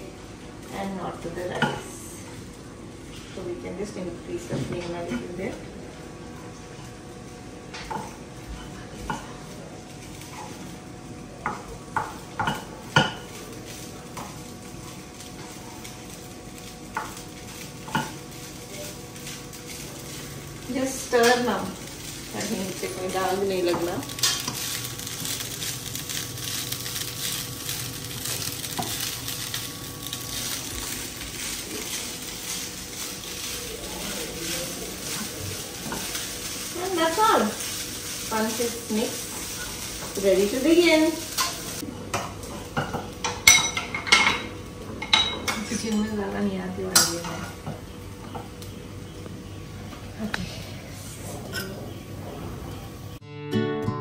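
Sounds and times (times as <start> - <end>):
rice sizzling in wok: 0.0 - 53.2.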